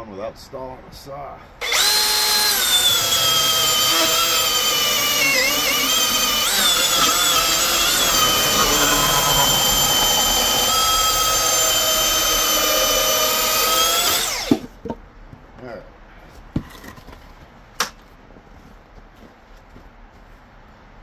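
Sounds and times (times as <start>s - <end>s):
electric chainsaw cutting wood: 1.6s - 14.7s.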